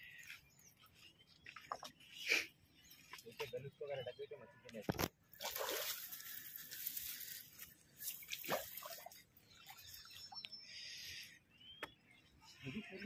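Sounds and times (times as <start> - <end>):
fish splashing in water: 5.4 - 6.6, 8.1 - 9.2.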